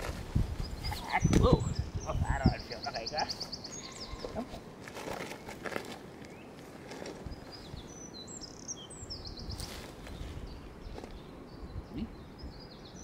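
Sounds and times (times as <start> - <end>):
outdoor background noise: 0.0 - 13.0
songbirds chirping: 0.0 - 13.0
bird trill: 0.6 - 4.5, 7.2 - 13.0.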